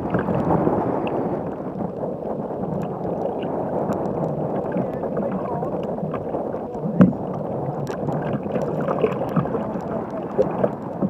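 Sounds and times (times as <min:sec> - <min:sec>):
water splashing against kayak hull: 0:00.0 - 0:11.0.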